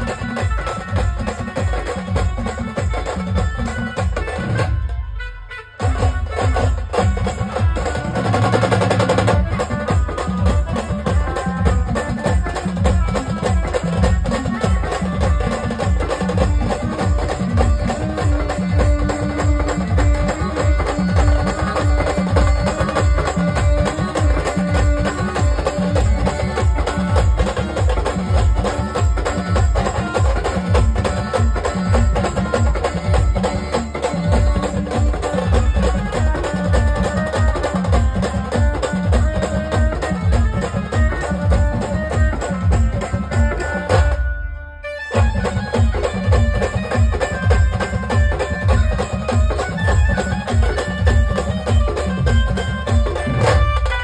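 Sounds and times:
side drum beaten with a stick: 0.0 - 44.4, 45.1 - 54.0
heavy drum beat: 5.8 - 44.2.

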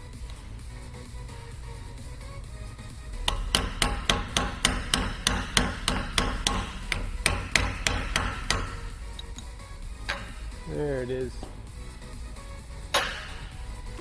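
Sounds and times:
hammer striking metal seal driver: 3.2 - 9.4, 10.1 - 10.5, 12.9 - 14.0.

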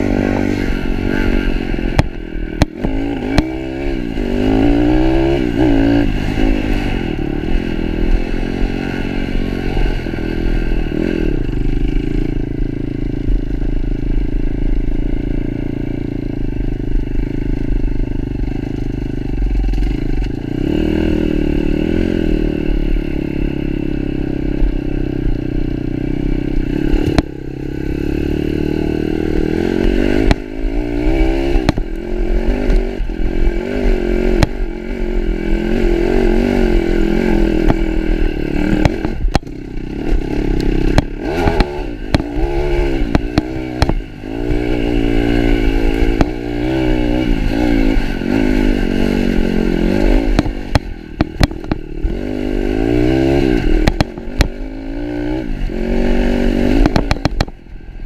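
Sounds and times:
pit bike engine revving: 0.0 - 16.3, 18.4 - 57.7
bike knocking and rattling: 17.2 - 20.5, 38.6 - 45.0, 50.1 - 52.3, 53.7 - 54.6, 56.8 - 57.7.

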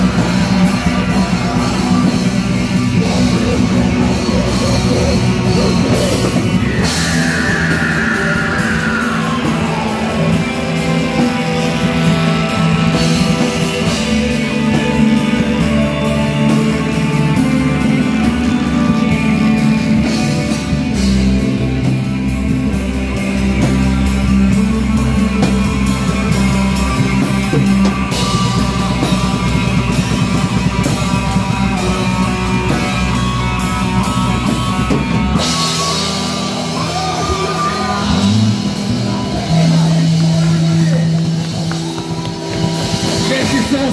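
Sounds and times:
singer's vocals: 0.0 - 16.7
bass guitar: 0.0 - 43.9
distorted electric guitars: 0.0 - 43.9
drum kit: 0.0 - 43.9.

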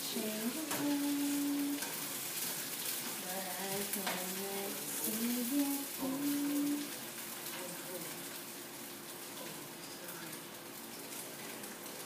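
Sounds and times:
woman humming: 0.0 - 1.8, 3.2 - 6.9
food sizzling in a pan: 0.0 - 12.0.

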